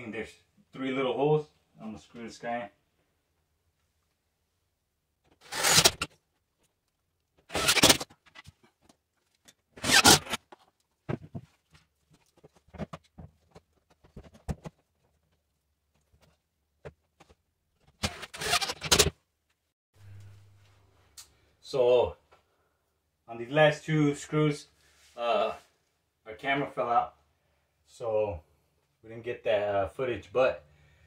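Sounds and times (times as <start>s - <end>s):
cordless drill driving screws: 5.4s - 6.1s, 7.5s - 8.0s, 9.8s - 10.4s, 18.0s - 19.1s.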